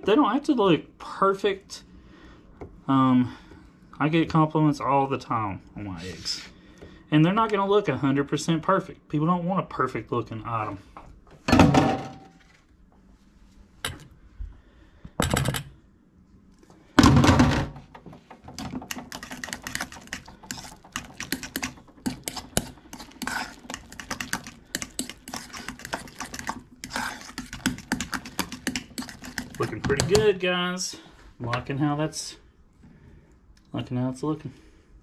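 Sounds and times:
fork scraping metal bowl: 18.9s - 30.1s.

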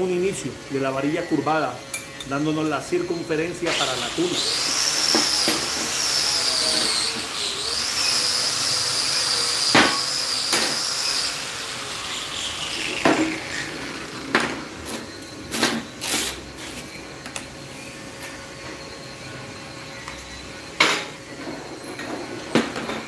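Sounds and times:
high whine sliding down: 2.8s - 17.1s.

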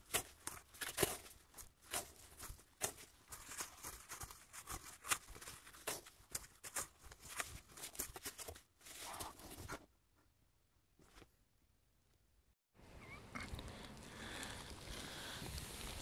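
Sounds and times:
packed snow crunching and scraping: 0.0s - 7.5s, 13.4s - 16.0s.

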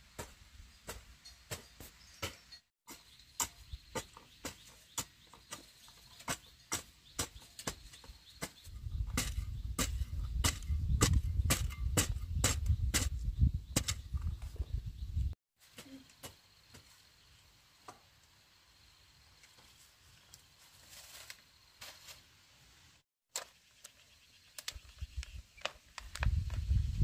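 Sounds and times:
hoe chopping dry soil: 0.1s - 14.1s.

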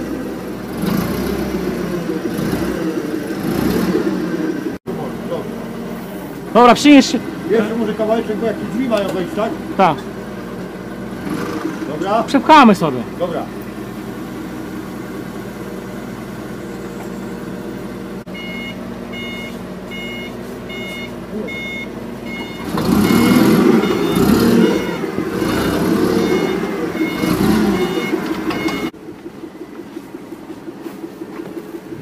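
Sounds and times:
forklift engine running: 0.0s - 32.0s
reversing alarm beeping: 18.3s - 29.0s.

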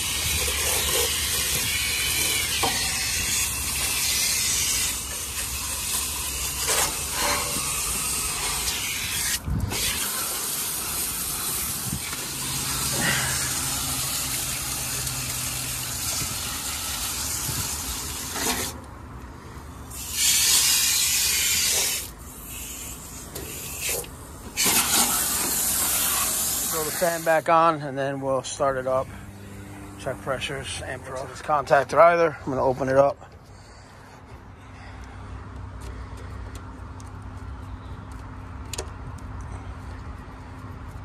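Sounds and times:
hose water spraying: 0.0s - 18.8s, 19.9s - 27.8s.

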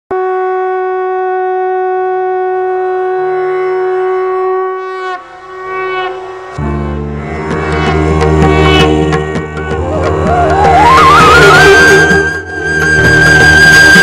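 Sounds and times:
conch shell blast: 0.1s - 8.0s.

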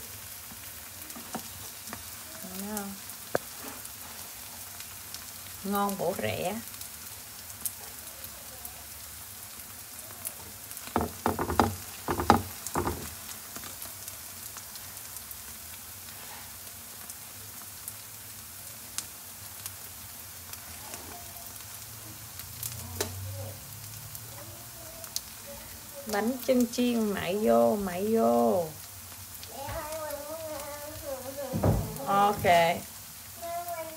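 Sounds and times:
rice cake sizzling in oil: 0.0s - 33.9s
sharp knocks and clatter: 10.9s - 13.2s.

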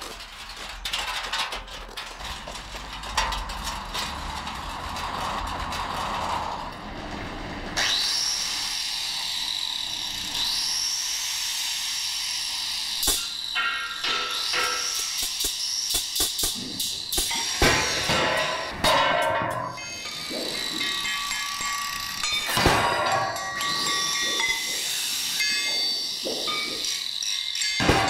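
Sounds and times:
metal tools clattering: 18.1s - 28.0s.

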